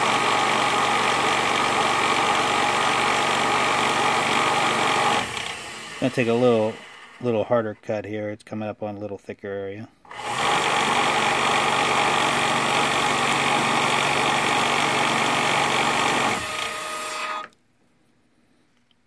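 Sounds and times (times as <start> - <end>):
lathe cutting metal: 10.1 - 17.5.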